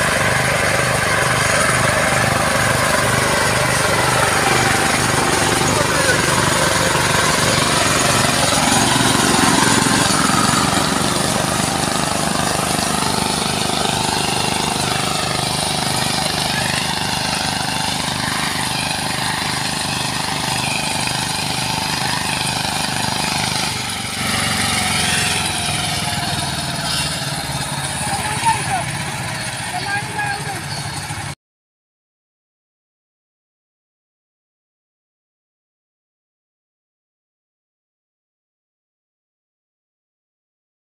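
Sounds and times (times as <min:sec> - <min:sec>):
power tiller engines running: 0:00.0 - 0:31.4.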